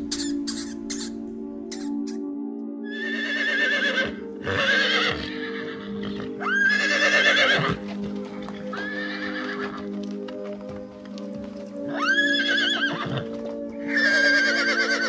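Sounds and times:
background music: 0.0s - 15.0s
horse whinnying: 2.9s - 9.9s, 11.9s - 15.0s.

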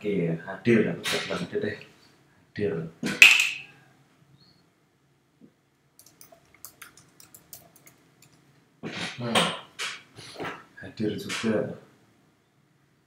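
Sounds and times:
computer clicks: 6.0s - 8.4s.

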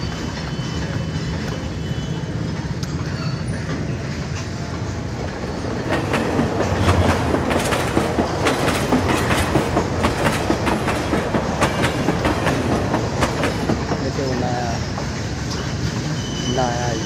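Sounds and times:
freight train rumbling past: 0.0s - 17.0s
wheels clattering over track: 5.8s - 14.3s.

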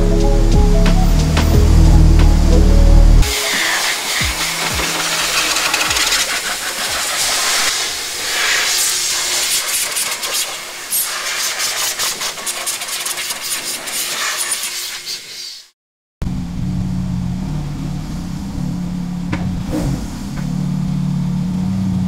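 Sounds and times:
vacuum hose sucking air: 3.2s - 15.7s.

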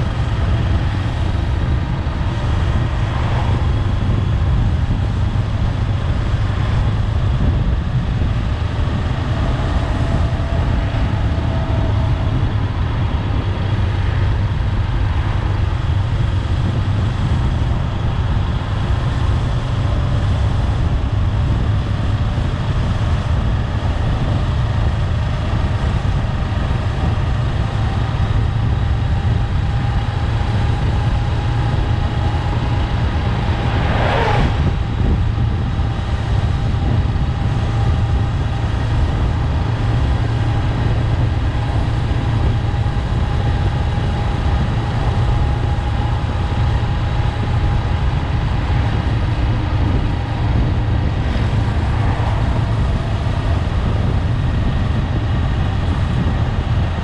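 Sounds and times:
motorcycle engine running: 0.0s - 57.0s
wind rush: 0.0s - 57.0s
brief whoosh: 32.8s - 35.3s.

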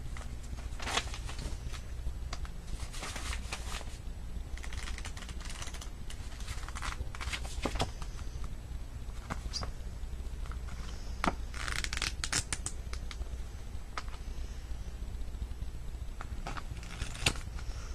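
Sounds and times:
book pages riffled: 0.0s - 1.9s, 2.6s - 8.5s, 10.4s - 13.1s, 16.2s - 17.9s
fingers tapping pages: 4.6s - 8.5s.

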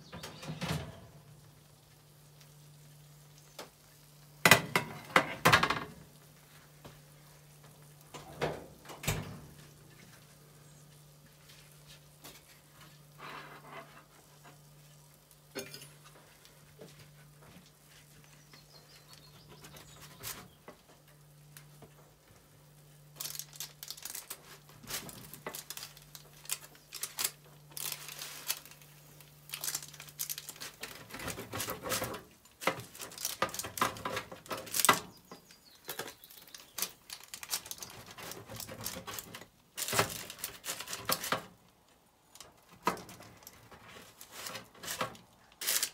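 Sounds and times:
baking paper crinkling: 9.3s - 45.9s.

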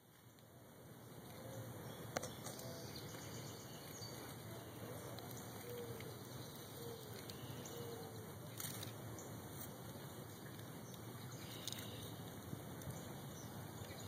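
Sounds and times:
faint short chirping calls: 10.9s - 12.3s.

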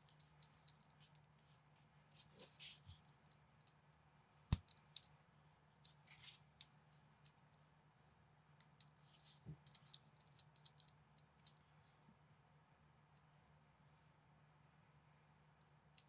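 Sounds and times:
small plastic parts clicking: 4.5s - 5.1s, 9.6s - 11.6s.

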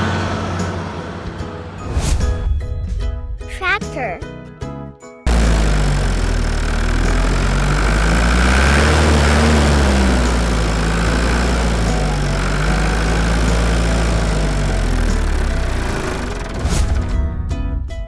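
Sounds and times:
vehicle engine idling: 5.3s - 17.0s.

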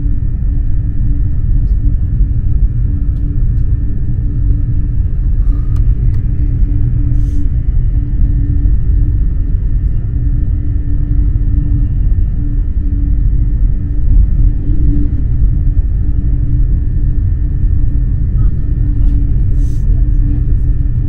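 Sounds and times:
train running rumble: 0.0s - 21.0s.

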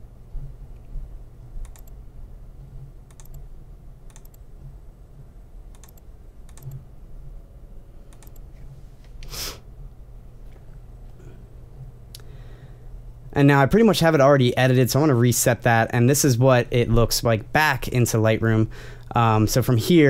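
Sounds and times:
low electrical hum: 0.0s - 20.0s
computer mouse clicks: 1.6s - 2.0s, 2.6s - 3.5s, 4.1s - 4.4s, 5.7s - 6.8s, 8.1s - 9.3s
breathy puff of noise: 9.2s - 9.7s.

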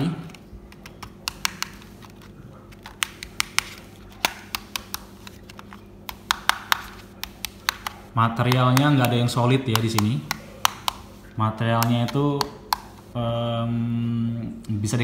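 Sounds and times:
faint steady hum: 0.0s - 15.0s
fingers tapping plastic camcorder: 0.3s - 13.0s.

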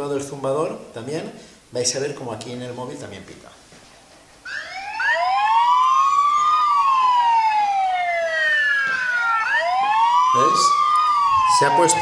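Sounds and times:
electronic siren alarm wailing: 4.4s - 12.0s.

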